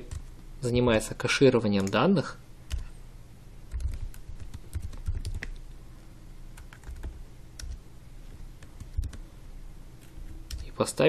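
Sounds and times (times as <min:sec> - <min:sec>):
keyboard typing: 0:01.7 - 0:02.0, 0:02.7 - 0:02.9, 0:03.7 - 0:05.7, 0:06.6 - 0:09.3, 0:10.1 - 0:10.7.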